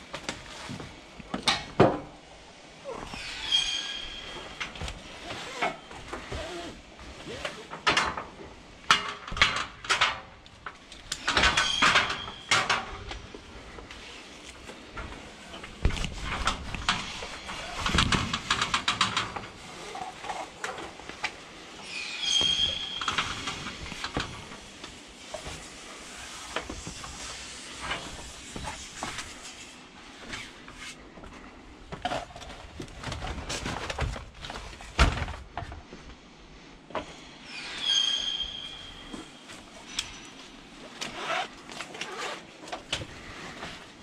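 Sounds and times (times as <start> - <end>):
short high squeal: 3.1 - 4.6, 21.8 - 23.6, 37.4 - 39.5.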